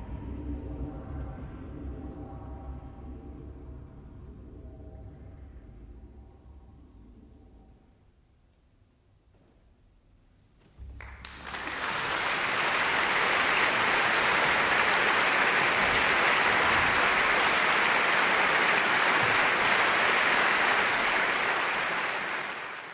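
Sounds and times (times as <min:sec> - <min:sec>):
audience applause: 0:11.0 - 0:22.9.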